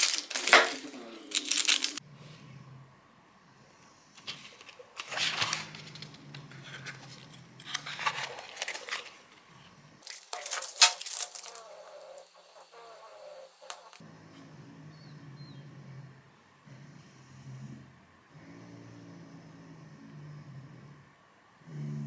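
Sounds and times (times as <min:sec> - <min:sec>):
paper rustling and crinkling: 0:00.0 - 0:02.0, 0:04.2 - 0:12.4.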